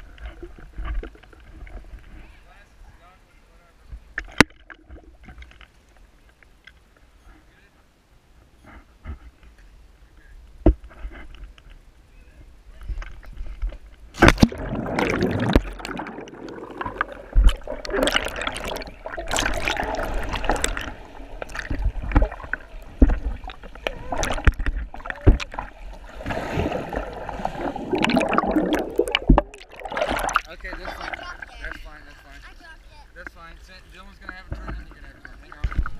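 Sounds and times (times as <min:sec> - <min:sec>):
pool water splashing and gurgling: 0:14.1 - 0:33.0.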